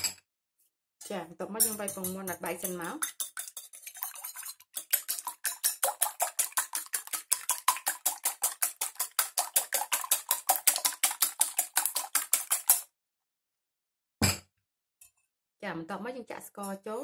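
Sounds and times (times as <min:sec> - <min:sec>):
whisk clicking against glass bowl: 0:01.6 - 0:12.9.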